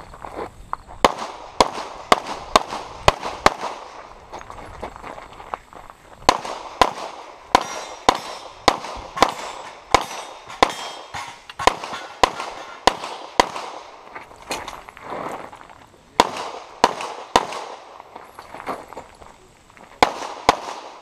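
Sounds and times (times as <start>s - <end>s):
pistol shots with echo: 1.0s - 4.0s, 6.3s - 14.0s, 16.2s - 18.0s, 20.0s - 21.0s.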